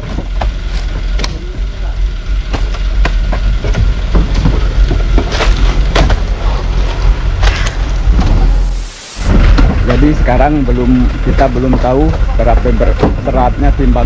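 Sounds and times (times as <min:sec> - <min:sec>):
steady low rumble: 0:00.0 - 0:14.0
sharp knocks and cracks: 0:02.5 - 0:06.3.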